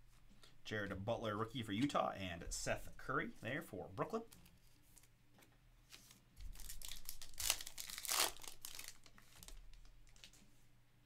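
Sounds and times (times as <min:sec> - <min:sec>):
foil pack crinkling and tearing: 0:06.0 - 0:10.4.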